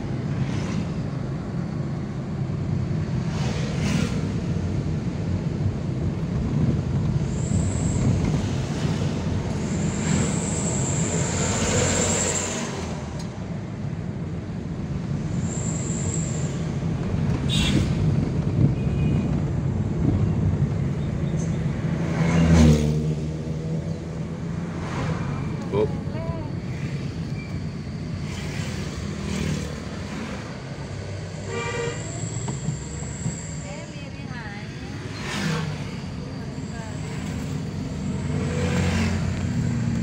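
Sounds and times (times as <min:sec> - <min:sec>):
car engine and tyre rumble: 0:00.0 - 0:40.0
vehicle passing: 0:21.8 - 0:27.1, 0:34.3 - 0:40.0
thin high squeal: 0:31.4 - 0:38.9.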